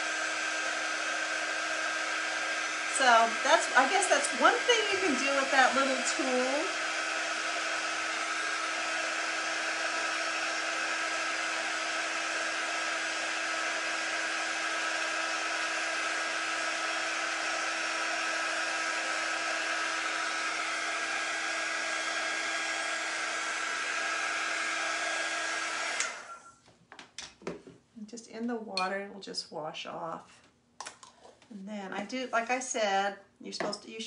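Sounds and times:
heat tool blowing air: 0.0s - 26.5s.

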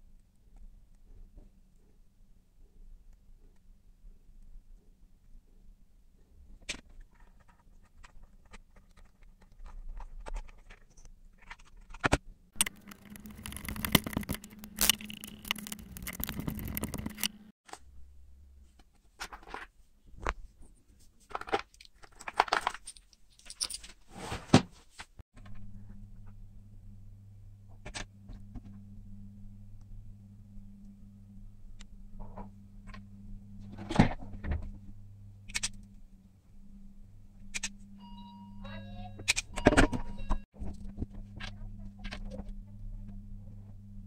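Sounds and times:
plastic parts clicking and tapping: 6.6s - 17.4s
scraping and rattling: 6.9s - 17.5s.

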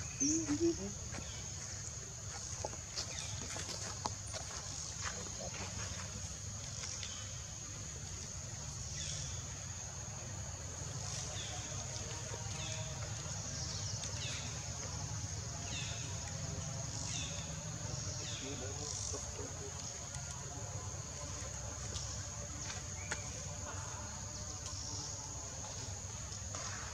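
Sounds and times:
high-pitched insect drone: 0.0s - 2.5s.

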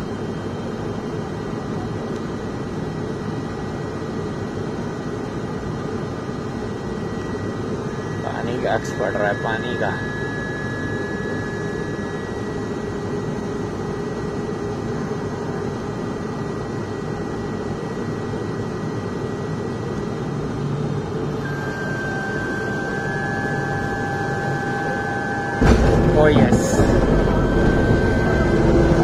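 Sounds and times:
turboprop engine roar in cabin: 0.0s - 29.0s
thin whining tones: 6.9s - 13.6s, 21.3s - 29.0s.

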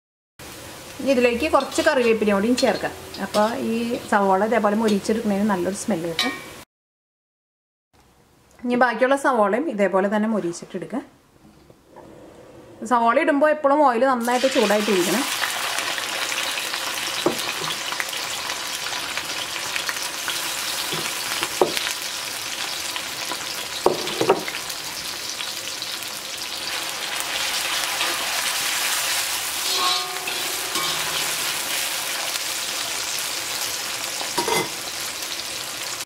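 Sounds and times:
onions sizzling in hot oil: 0.4s - 6.6s, 14.2s - 36.0s.

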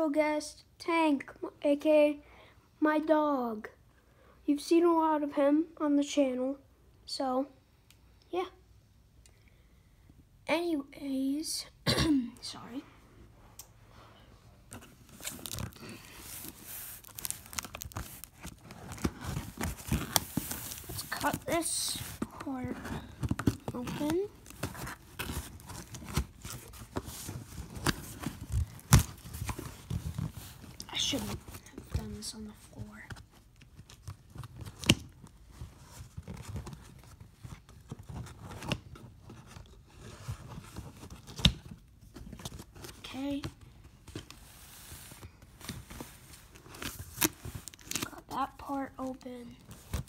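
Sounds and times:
packing tape and cardboard tearing: 14.7s - 31.7s, 45.7s - 48.4s.

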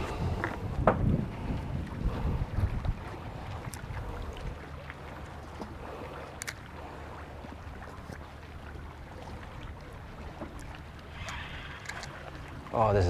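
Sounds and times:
water ambience: 0.0s - 13.0s
wind: 0.0s - 13.0s
faint clicks: 5.5s - 6.7s, 10.5s - 12.5s.

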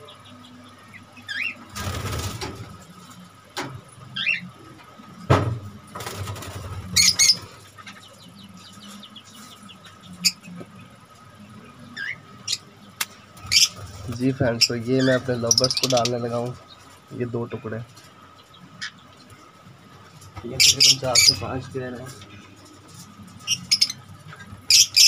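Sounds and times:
parrots chirping and squeaking: 0.9s - 2.4s, 4.1s - 4.5s, 6.4s - 9.0s, 10.0s - 10.5s, 11.8s - 12.7s, 13.4s - 17.1s, 17.9s - 25.0s.

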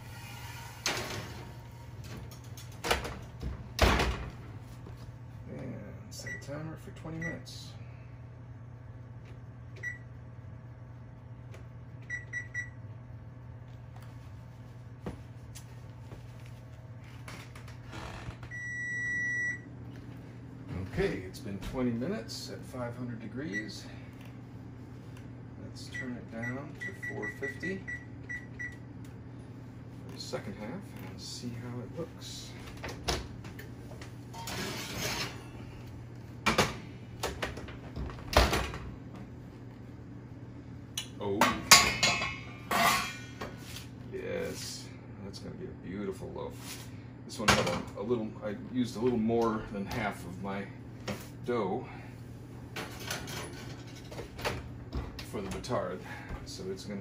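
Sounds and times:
steady low hum: 0.0s - 57.0s
long steady beep: 18.5s - 19.6s.

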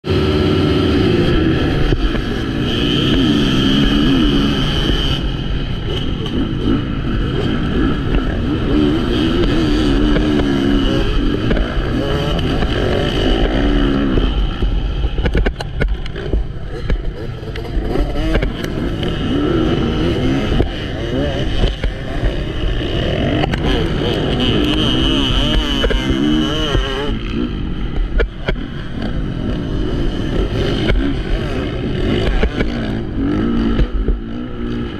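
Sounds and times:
motocross bike engines revving: 0.0s - 34.9s.

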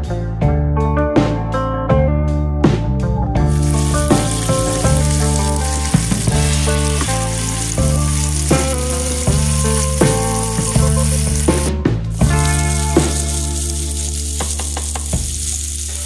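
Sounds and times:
background music: 0.0s - 16.0s
vegetables sizzling in a pan: 3.5s - 16.0s.

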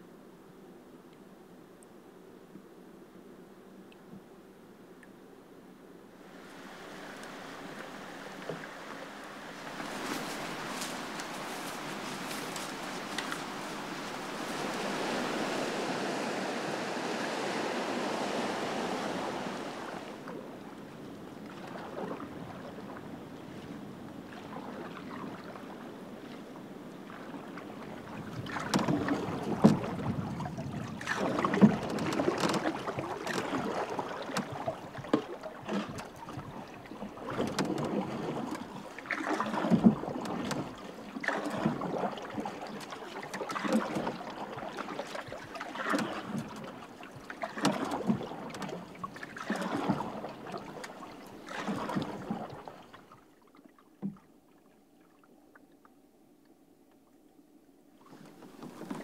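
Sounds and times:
paddle splashing and dripping: 6.4s - 56.0s, 58.0s - 59.0s
paddle knocks: 9.6s - 20.4s, 28.2s - 52.7s, 58.1s - 59.0s
steady rushing noise: 9.9s - 20.2s.

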